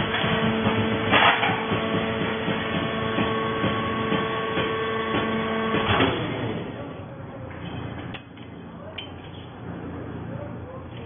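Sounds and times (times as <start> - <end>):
baler humming and whining: 0.0 - 7.2.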